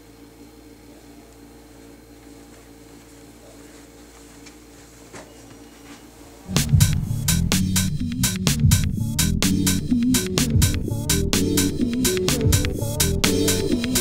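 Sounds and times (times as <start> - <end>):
low hum of several tones: 0.0 - 11.4
loud music with a beat: 6.5 - 14.0.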